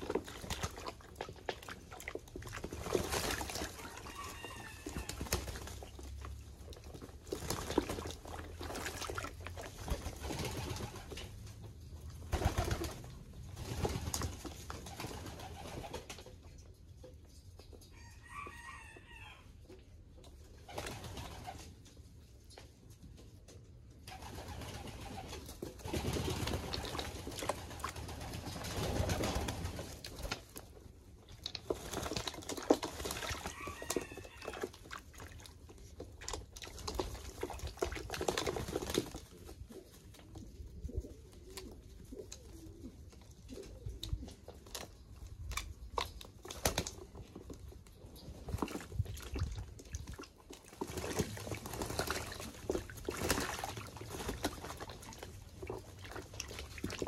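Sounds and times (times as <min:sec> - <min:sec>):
water splashing: 0:00.0 - 0:10.6, 0:31.4 - 0:39.3, 0:48.5 - 0:57.0
pigeons flapping wings: 0:04.5 - 0:06.0, 0:09.8 - 0:11.4, 0:12.3 - 0:16.3, 0:20.6 - 0:21.7, 0:24.1 - 0:30.5, 0:36.8 - 0:39.8
low pigeon cooing: 0:39.7 - 0:44.6.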